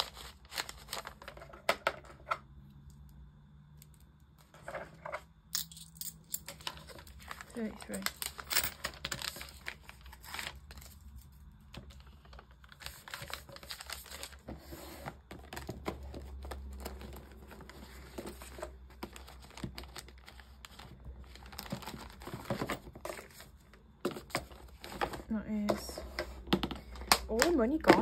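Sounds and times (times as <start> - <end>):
paper envelopes rustling: 0.0 - 1.8, 6.6 - 26.0.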